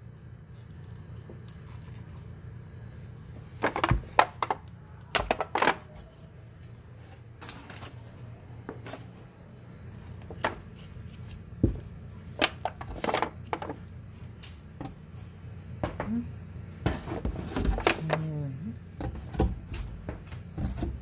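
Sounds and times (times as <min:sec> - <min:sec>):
plastic containers clicking and knocking: 0:03.6 - 0:05.9, 0:12.4 - 0:13.8.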